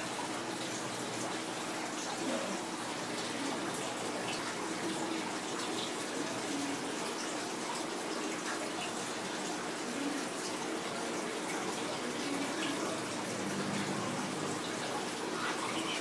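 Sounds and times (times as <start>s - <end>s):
running water rushing: 0.0s - 16.0s.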